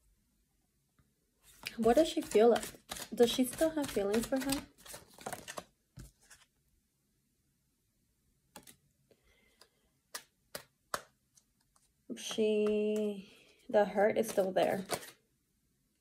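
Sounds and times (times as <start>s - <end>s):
cards shuffling with sharp clicks: 1.5s - 6.5s, 8.5s - 8.8s, 9.5s - 13.1s, 14.2s - 15.2s.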